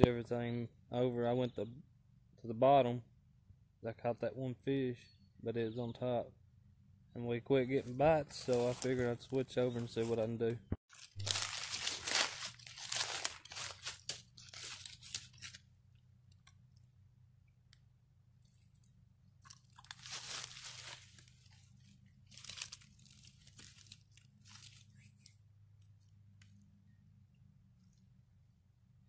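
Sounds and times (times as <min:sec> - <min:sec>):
dry leaves crunching and rustling: 0:07.8 - 0:10.2, 0:10.9 - 0:15.6, 0:19.4 - 0:25.3.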